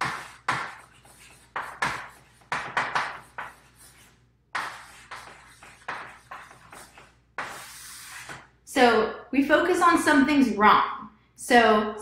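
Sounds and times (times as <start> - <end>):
chalk scratching on chalkboard: 0.0 - 8.5.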